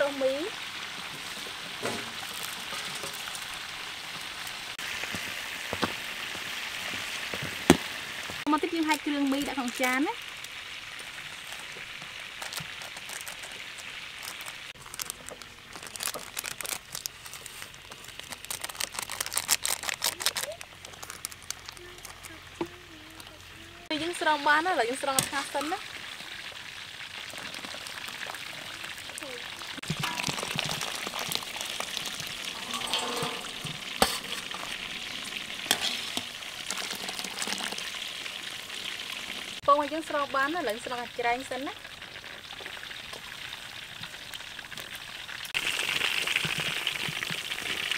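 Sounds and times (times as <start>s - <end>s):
chicken frying in hot oil: 0.0s - 47.9s
plastic sachets crinkling: 2.2s - 3.5s, 8.8s - 22.6s, 29.1s - 32.4s, 35.8s - 39.2s.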